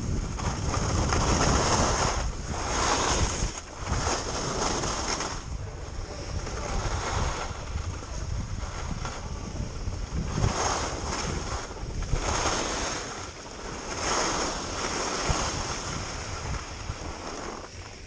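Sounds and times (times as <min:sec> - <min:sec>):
skis scraping on snow: 0:00.0 - 0:18.0
wind rumble on microphone: 0:00.0 - 0:18.0.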